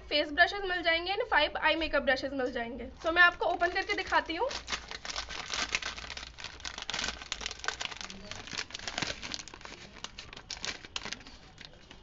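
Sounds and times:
plastic packaging crackling: 2.9s - 12.0s.

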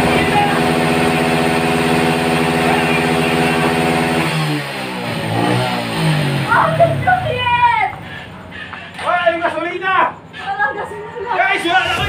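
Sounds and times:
motorcycle engine revving: 0.0s - 8.6s.

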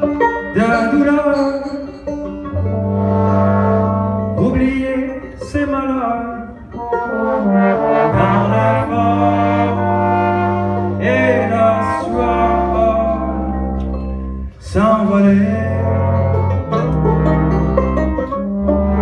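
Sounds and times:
live band playing: 0.0s - 19.0s
trombones holding long notes: 2.4s - 5.0s, 6.7s - 19.0s.

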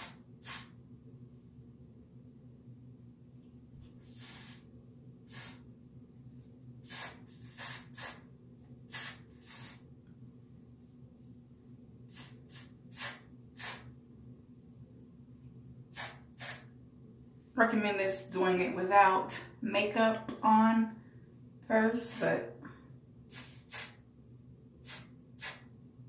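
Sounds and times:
hair spray hissing bursts: 0.0s - 0.7s, 4.0s - 4.6s, 5.3s - 5.6s, 6.8s - 8.3s, 8.9s - 9.8s, 12.1s - 13.9s, 15.9s - 16.7s, 22.0s - 22.4s, 23.3s - 24.0s, 24.8s - 25.7s.

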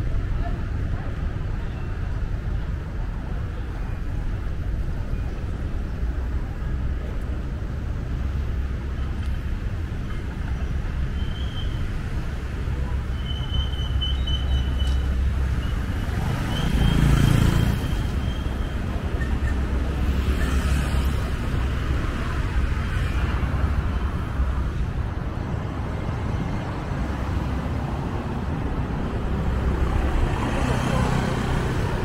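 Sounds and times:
city traffic rumble: 0.0s - 32.0s
vehicle passing close by: 16.1s - 18.2s.

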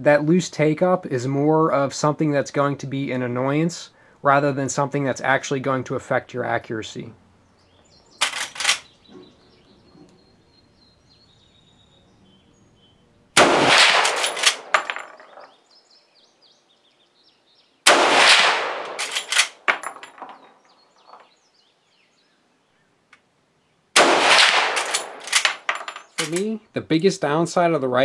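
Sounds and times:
rifle shots echoing: 13.4s - 15.5s, 17.9s - 20.4s, 24.0s - 26.0s.

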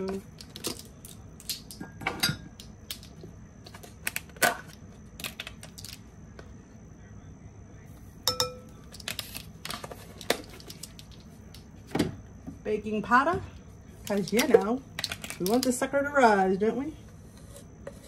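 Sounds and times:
ringing clink: 8.3s - 8.7s.

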